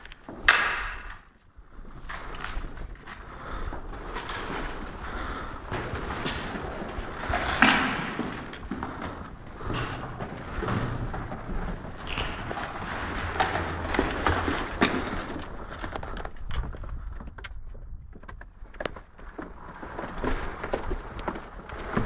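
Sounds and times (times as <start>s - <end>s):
kit rustling: 1.6s - 17.2s, 18.3s - 22.0s
gear rattling: 1.9s - 17.2s
footsteps on concrete stairs: 3.0s - 22.0s.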